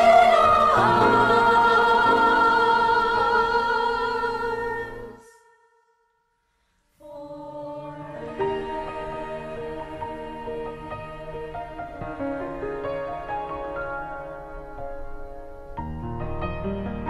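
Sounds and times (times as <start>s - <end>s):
choir holding a chord: 0.0s - 5.7s, 7.0s - 13.4s
soft instrumental music: 7.2s - 17.0s.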